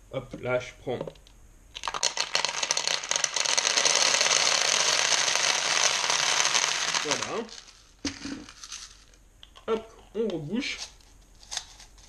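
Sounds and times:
plastic pellets rattling into bottle: 1.7s - 9.2s.

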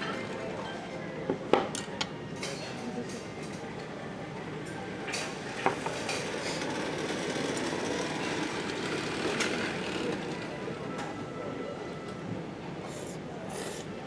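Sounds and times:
restaurant background hum: 0.0s - 14.0s.

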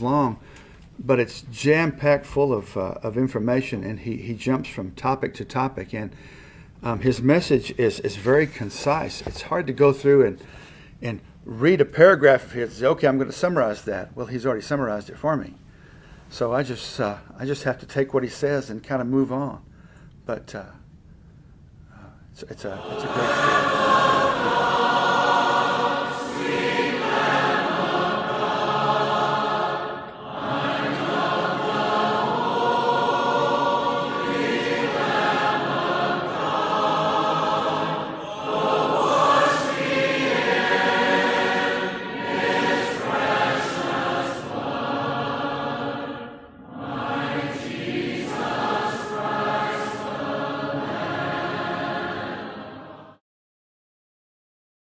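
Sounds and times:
a cappella choir singing: 22.5s - 53.2s.

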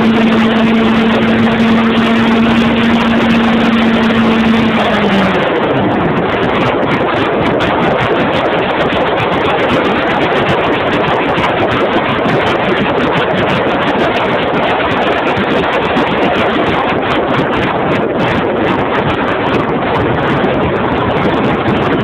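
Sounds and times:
plane engine and propeller: 0.0s - 22.0s
wind rushing on microphone: 0.0s - 22.0s.

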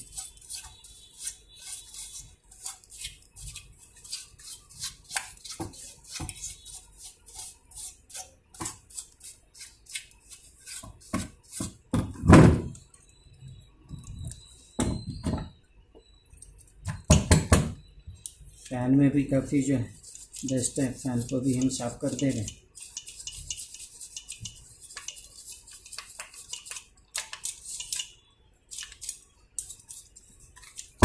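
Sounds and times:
loud thump: 12.0s - 12.7s
brush scrubbing scratchily: 19.8s - 26.9s.

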